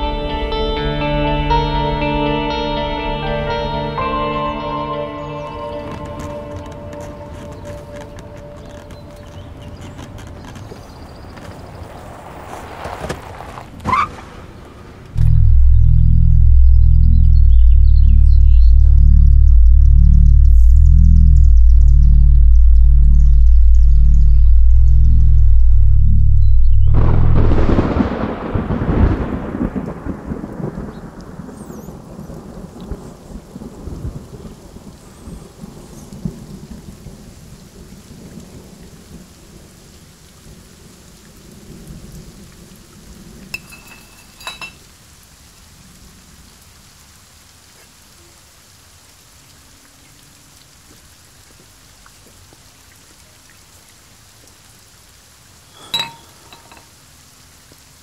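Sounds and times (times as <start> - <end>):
rain falling: 0.0 - 58.0
rolling thunder: 14.2 - 34.9
short ringing clink: 43.6 - 44.8, 55.8 - 56.9.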